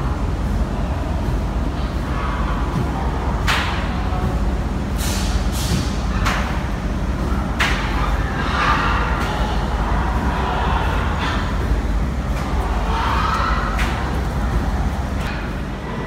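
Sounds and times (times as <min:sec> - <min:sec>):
steady low rumble: 0:00.0 - 0:16.0
sharp slaps: 0:03.4 - 0:03.8, 0:05.8 - 0:06.6, 0:07.6 - 0:08.0.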